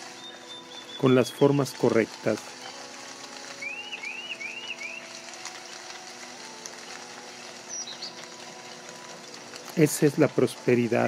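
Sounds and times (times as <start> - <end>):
bird chirping: 0.1 - 1.6, 3.6 - 5.1, 7.7 - 8.2.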